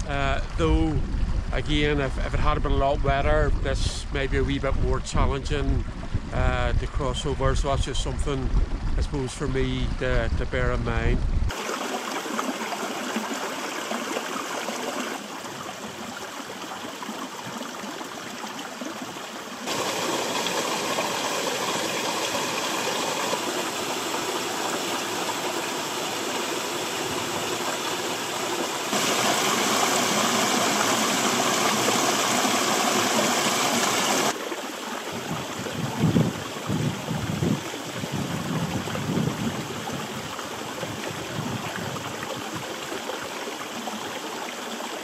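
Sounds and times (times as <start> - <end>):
water rushing over rocks: 11.5 - 45.0.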